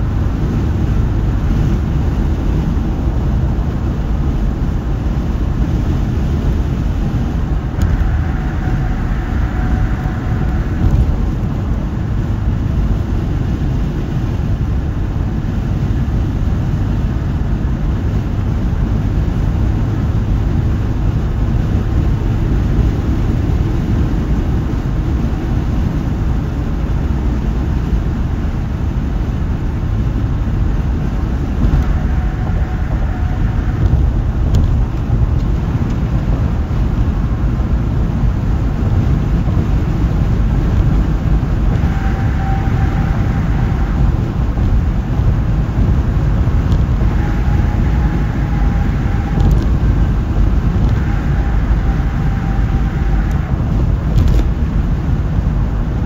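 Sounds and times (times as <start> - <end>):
car tire and road noise: 0.0 - 56.0
higher hum: 5.1 - 14.1, 29.6 - 38.5.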